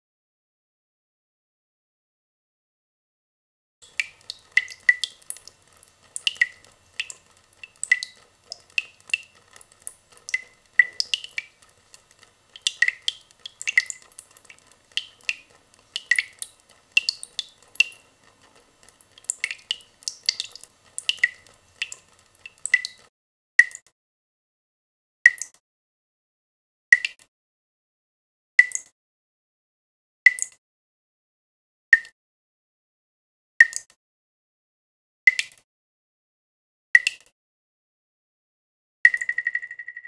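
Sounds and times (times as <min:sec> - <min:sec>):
water drips plinking in basin: 0:03.8 - 0:23.8, 0:39.1 - 0:39.9.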